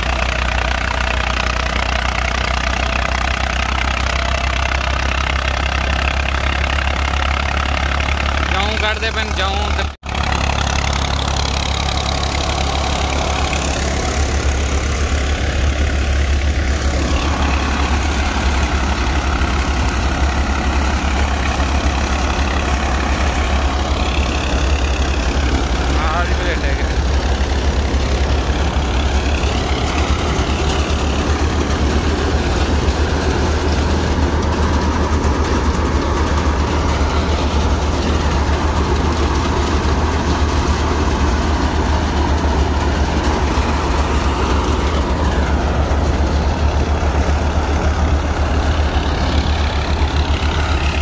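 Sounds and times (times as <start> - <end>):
tractor diesel engine drone: 0.0 - 51.0
thresher drum and fan noise: 8.5 - 51.0.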